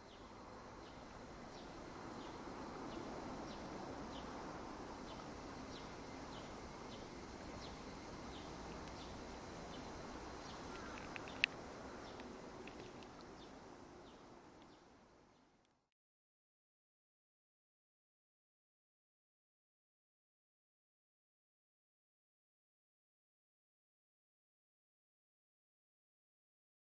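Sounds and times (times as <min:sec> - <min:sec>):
low background hum: 0:00.0 - 0:15.9.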